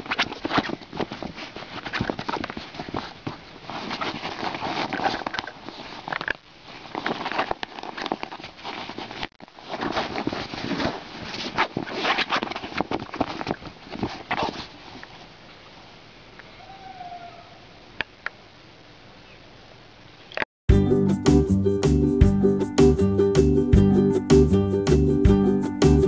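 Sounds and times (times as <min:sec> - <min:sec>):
dog claws scratching cloth: 0:00.0 - 0:15.3.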